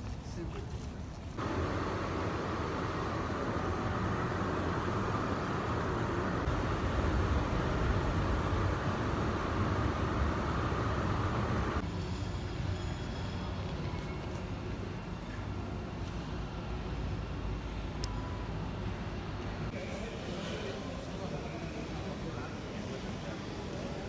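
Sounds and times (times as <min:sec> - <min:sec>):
train carriage rumbling: 0:00.0 - 0:11.9.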